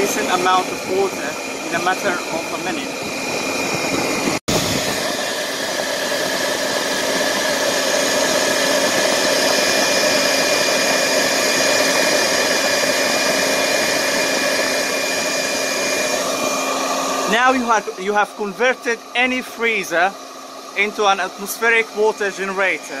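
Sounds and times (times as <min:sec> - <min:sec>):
hair dryer running: 0:00.0 - 0:23.0.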